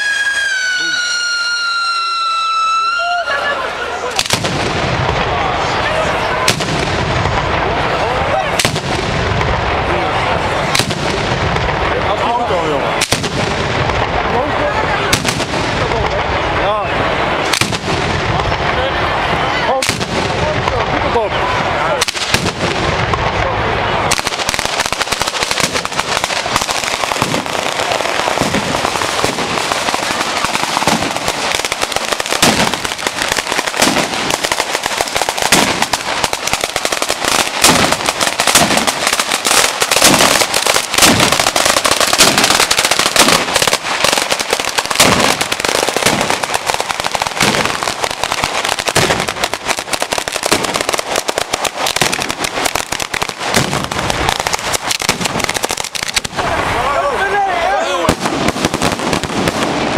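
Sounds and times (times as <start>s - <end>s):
firecrackers crackling: 0.0s - 59.9s
heavy firework booms: 4.1s - 59.9s.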